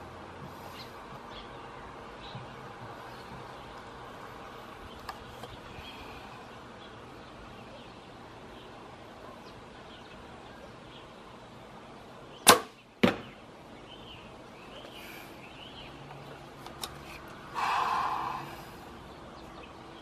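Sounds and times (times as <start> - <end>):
sharp crack: 12.4 - 13.3.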